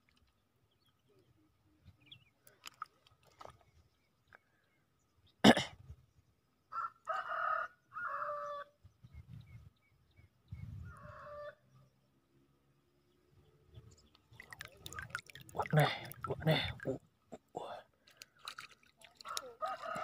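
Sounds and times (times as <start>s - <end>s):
rooster crowing: 6.7s - 8.7s, 19.2s - 20.0s.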